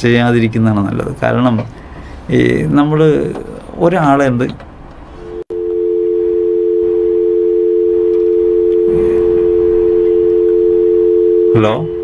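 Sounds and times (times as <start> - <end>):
telephone dial tone: 5.5 - 11.6.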